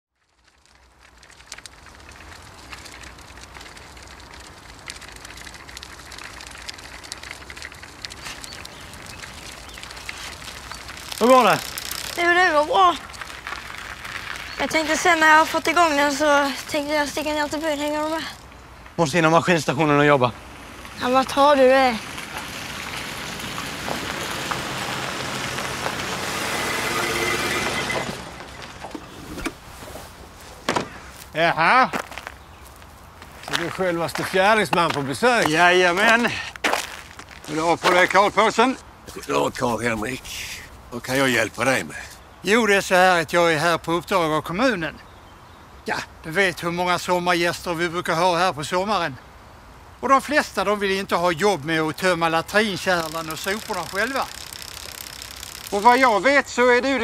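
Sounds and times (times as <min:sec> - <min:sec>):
light clicks and crackles: 0:00.2 - 0:19.0, 0:30.4 - 0:38.3, 0:52.0 - 0:56.3
tyres on dirt track: 0:01.0 - 0:44.4, 0:51.2 - 0:57.0
car engine: 0:22.0 - 0:29.1
steady rush of noise: 0:52.1 - 0:57.0.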